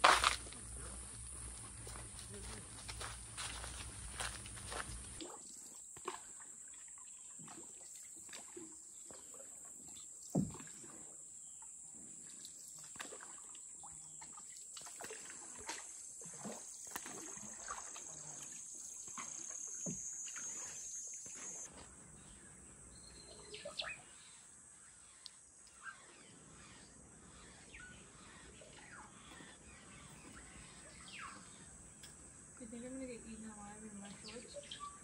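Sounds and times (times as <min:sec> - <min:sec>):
water splashing around canoe: 0:02.9 - 0:22.0
high-pitched insect drone: 0:15.3 - 0:21.7
bird calls: 0:18.9 - 0:33.1, 0:33.9 - 0:35.0.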